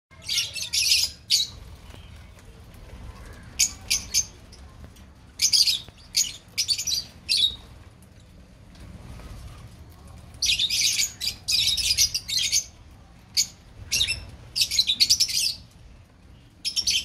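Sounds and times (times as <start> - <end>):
lovebirds squawking and chirping: 0.2 - 2.3, 3.2 - 4.7, 5.3 - 7.8, 10.4 - 12.8, 13.4 - 15.8, 16.4 - 17.0.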